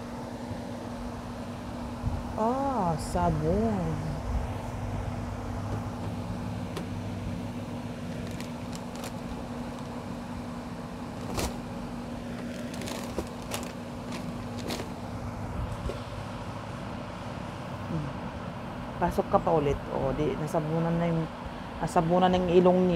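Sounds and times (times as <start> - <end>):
steady low hum: 0.0 - 22.9
plastic packets and cardboard crinkling: 8.0 - 10.2, 11.1 - 15.1
crackles: 8.1 - 10.0, 12.3 - 14.9.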